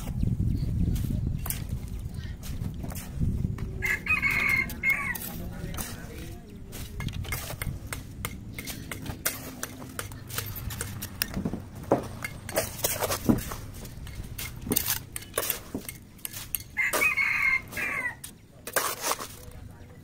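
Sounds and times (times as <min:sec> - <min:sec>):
rooster crowing: 0:03.8 - 0:05.3, 0:16.8 - 0:18.2
trowel tapping and scraping bricks: 0:04.5 - 0:17.2, 0:18.2 - 0:19.7.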